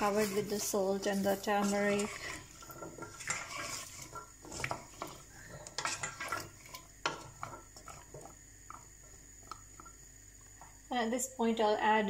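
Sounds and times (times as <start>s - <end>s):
spoon scraping and clinking in pan: 0.0s - 8.9s.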